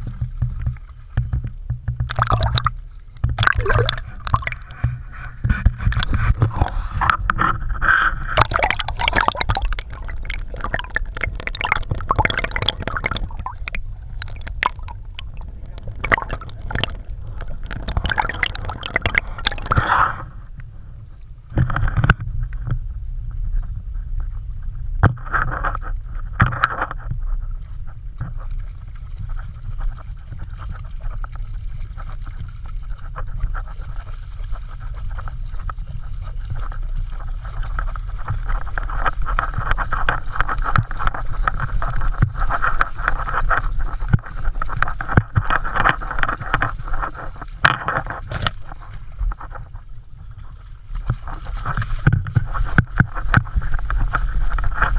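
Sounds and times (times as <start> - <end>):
steady low rumble: 0.0 - 26.4
stream water gurgling and splashing: 2.0 - 20.3, 28.4 - 54.9
dog wading through water: 3.3 - 6.8, 8.4 - 19.9.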